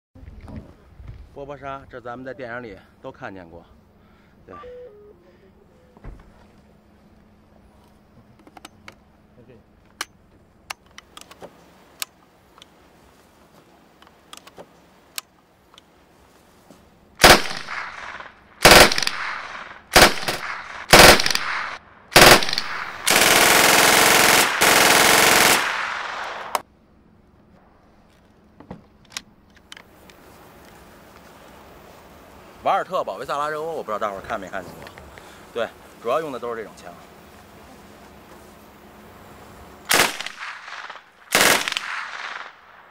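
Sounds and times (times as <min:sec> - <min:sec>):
metallic clicks of gun handling: 0:09.8 - 0:11.4, 0:29.0 - 0:30.2
submachine gun automatic bursts: 0:17.2 - 0:26.6, 0:39.9 - 0:42.6.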